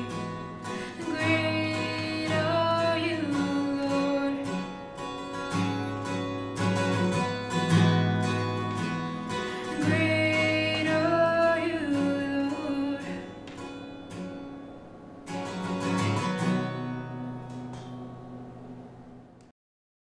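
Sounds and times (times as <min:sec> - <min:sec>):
woman singing: 0:00.0 - 0:04.8, 0:09.5 - 0:13.4
acoustic guitar strumming: 0:00.0 - 0:19.4.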